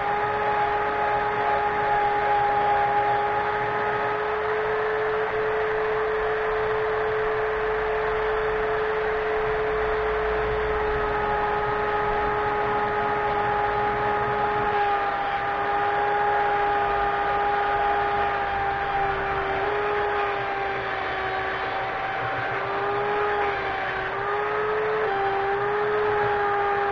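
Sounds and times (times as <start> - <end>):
belt sander motor whine: 0.0 - 26.9
sanding belt grinding wood: 9.6 - 26.9.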